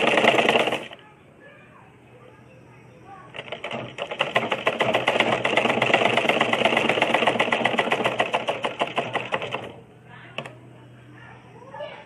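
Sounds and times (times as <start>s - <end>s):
sewing machine stitching: 0.0s - 1.0s, 3.3s - 9.8s.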